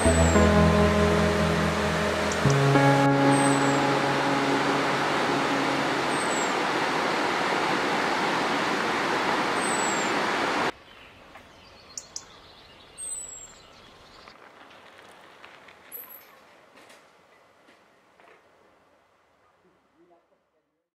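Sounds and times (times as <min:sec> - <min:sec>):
music: 0:00.0 - 0:06.5
waterfall rushing: 0:00.0 - 0:10.7
high bird chirps: 0:06.0 - 0:06.7.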